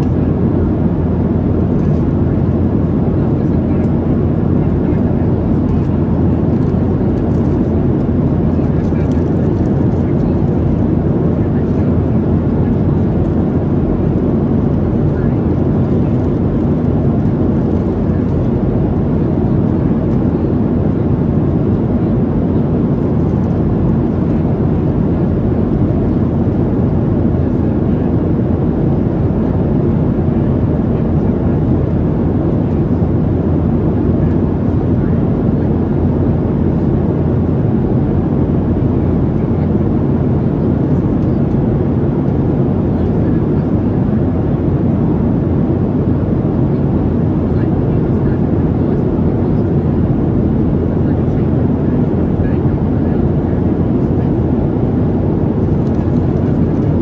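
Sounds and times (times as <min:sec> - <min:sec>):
airplane cabin engine rumble: 0:00.0 - 0:57.0.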